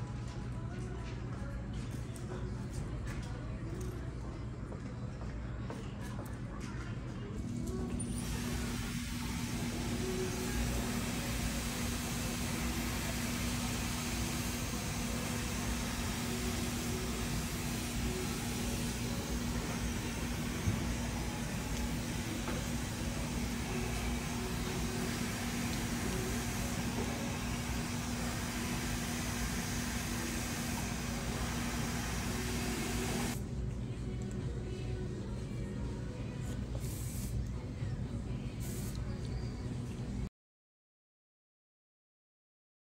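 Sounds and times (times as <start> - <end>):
low motor hum: 7.4 - 36.4
blower motor rushing air: 8.0 - 33.4.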